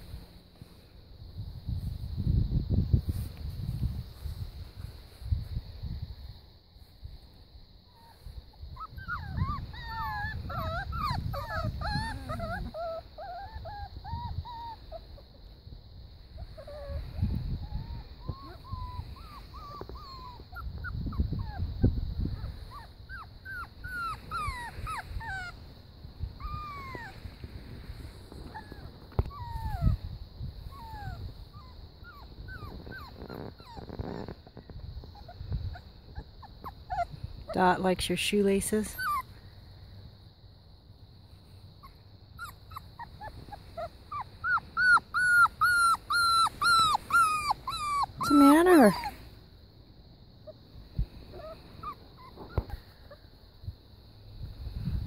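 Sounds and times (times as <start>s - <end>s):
puppies whimpering: 8.8s - 15.2s, 16.6s - 21.7s, 22.4s - 25.6s, 26.4s - 27.4s, 28.4s - 30.0s, 30.7s - 34.4s, 35.1s - 37.7s, 38.7s - 39.3s, 41.8s - 49.2s, 51.3s - 53.2s.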